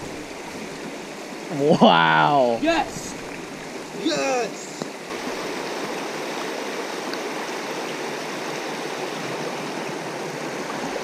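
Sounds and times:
creek rushing over rocks: 0.0s - 11.0s.

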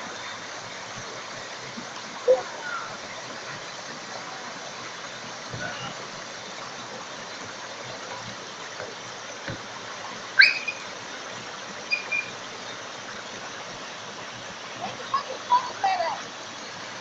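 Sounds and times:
high call rising in pitch: 10.4s - 10.8s, 11.9s - 12.3s.

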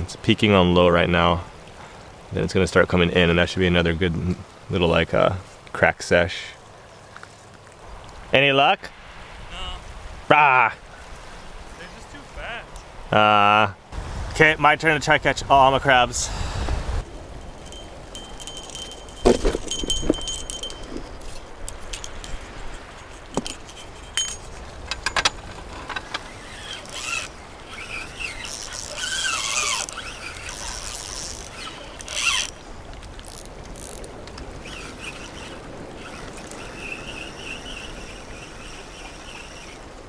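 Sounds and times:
stones clacking together: 17.6s - 26.2s.

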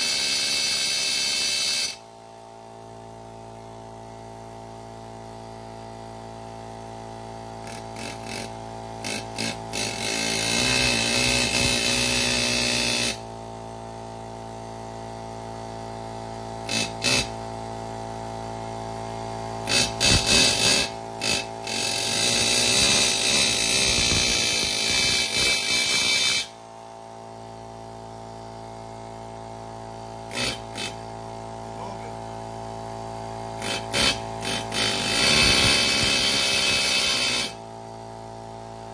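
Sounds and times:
air compressor humming: 0.0s - 38.9s
air chisel hammering metal: 19.7s - 26.5s, 33.6s - 37.6s.

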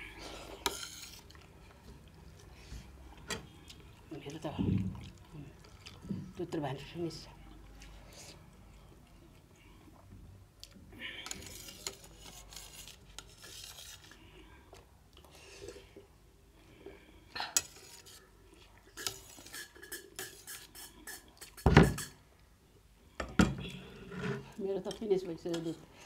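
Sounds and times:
metal spoon scraping on plate: 0.5s - 1.3s, 11.2s - 14.2s, 17.6s - 18.3s, 18.9s - 22.2s.

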